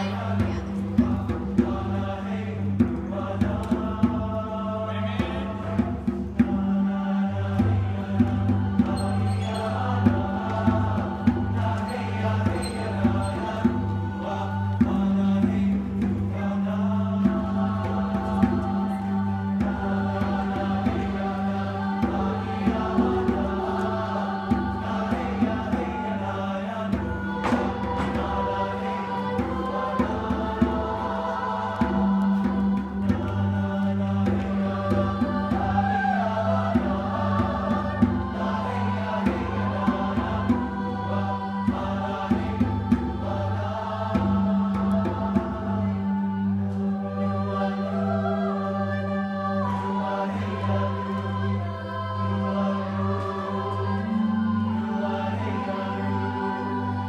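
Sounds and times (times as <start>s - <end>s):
mixed choir singing in harmony: 0.0s - 57.0s
drum beat: 7.6s - 43.4s.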